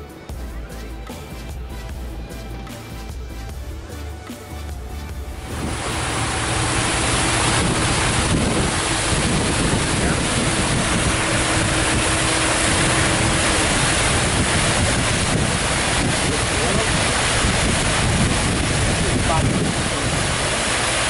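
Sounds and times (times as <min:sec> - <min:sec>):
waterfall rushing: 0:05.3 - 0:21.0.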